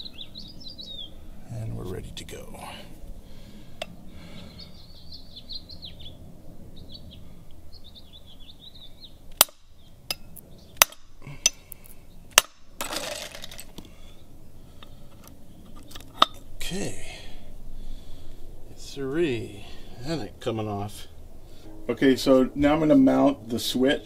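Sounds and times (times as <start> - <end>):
birds chirping: 0.0 - 12.4.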